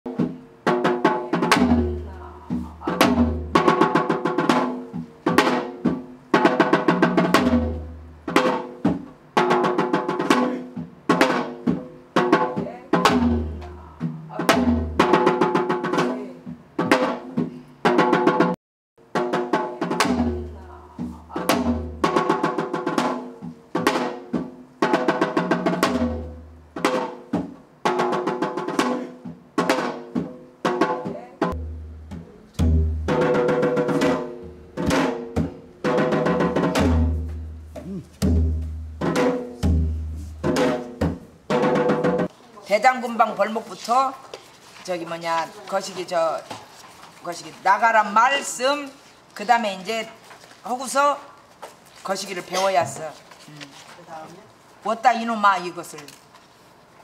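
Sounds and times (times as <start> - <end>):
low booming drum beat: 31.4 - 42.3.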